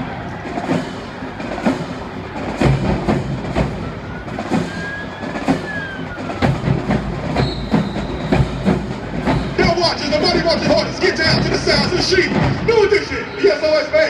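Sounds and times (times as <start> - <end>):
drumline playing a cadence: 0.0 - 13.3
faint whistling tone: 4.7 - 6.4, 7.4 - 8.5.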